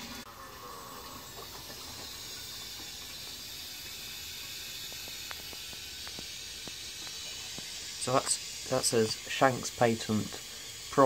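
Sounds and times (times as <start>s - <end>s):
water hissing into cistern: 0.0s - 11.0s
faint ticks: 3.8s - 7.9s.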